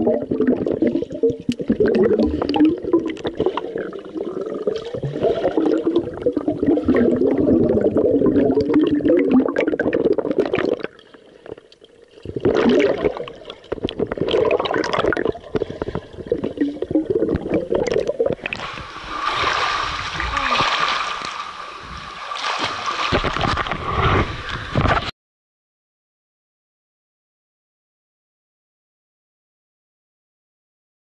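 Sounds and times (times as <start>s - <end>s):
bubble clicks: 0.0s - 3.5s, 12.4s - 18.7s
muffled underwater water churning: 0.0s - 25.1s.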